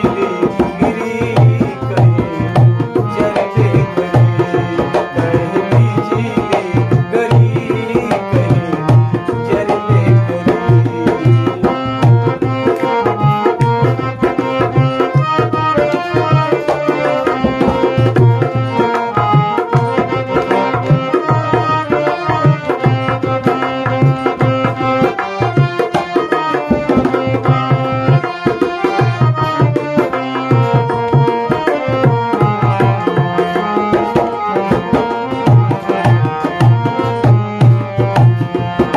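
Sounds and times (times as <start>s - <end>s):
hand drum rhythm: 0.0s - 38.9s
harmonium melody: 0.0s - 38.9s.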